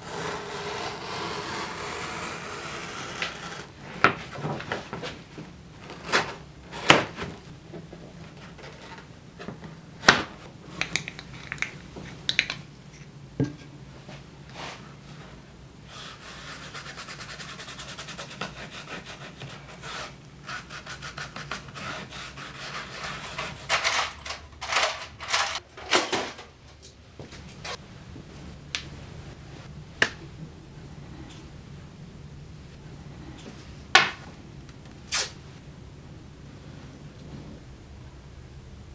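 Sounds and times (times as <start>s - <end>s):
tools knocking on a workbench: 13.4s - 13.7s.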